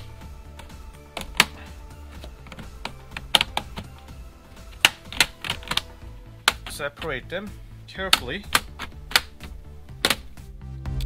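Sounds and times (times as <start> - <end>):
plastic clips clicking loose: 0.5 - 6.8, 8.1 - 10.4.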